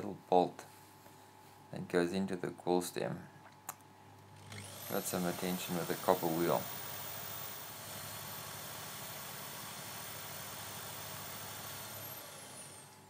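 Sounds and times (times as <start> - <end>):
power tool motor whine: 4.3 - 13.0.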